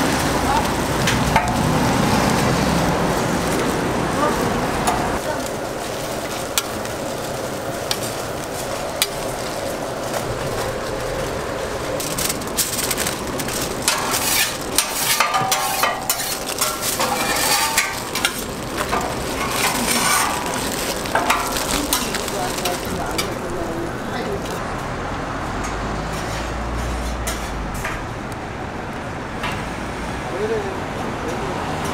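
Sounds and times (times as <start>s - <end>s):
food sizzling on griddle: 0.0s - 23.6s
plastic gloves and foil rustling: 0.0s - 24.6s.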